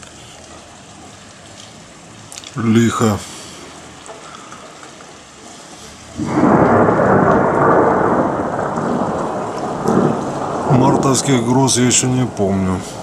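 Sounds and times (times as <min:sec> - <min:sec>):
rain hissing: 0:00.0 - 0:13.0
thunder crack and rumble: 0:06.2 - 0:13.0.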